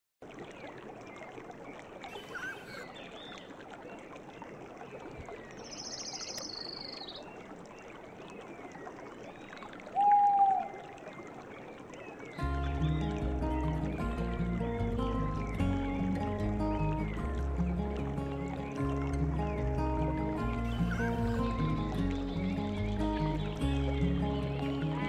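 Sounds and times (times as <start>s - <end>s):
nature background noise: 0.2s - 25.0s
rapid trilling bird call: 2.1s - 3.0s, 20.6s - 23.4s
held bird call: 2.1s - 3.1s, 20.5s - 23.6s
bird chirps: 2.1s - 3.4s, 5.6s - 7.3s, 20.6s - 25.0s.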